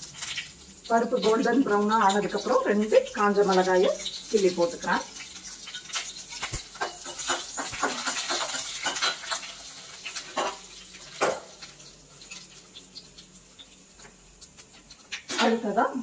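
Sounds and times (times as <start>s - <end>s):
hot oil crackling and spitting: 0.0s - 16.0s
ladle stirring against pan: 3.5s - 15.4s.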